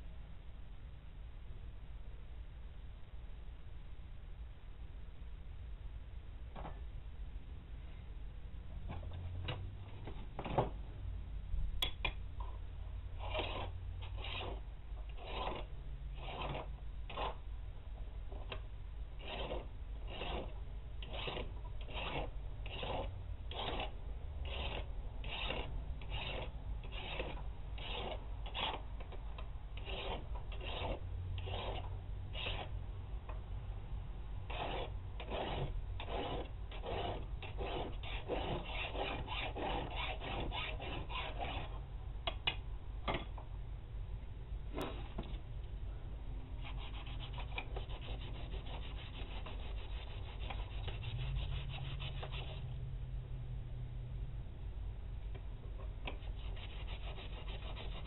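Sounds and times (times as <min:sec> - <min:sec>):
file scraping steel blade: 0:13.2 - 0:17.4, 0:19.2 - 0:28.8, 0:29.8 - 0:32.7, 0:34.5 - 0:41.8, 0:46.6 - 0:52.7, 0:56.1 - 0:58.0
soft rubbing on blade: 0:13.2 - 0:17.4, 0:19.2 - 0:23.9, 0:24.5 - 0:28.8, 0:29.8 - 0:32.7, 0:46.6 - 0:52.8, 0:56.1 - 0:58.0.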